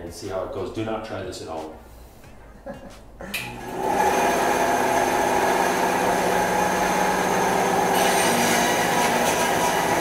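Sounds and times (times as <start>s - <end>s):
bandsaw motor humming and whining: 3.3s - 10.0s.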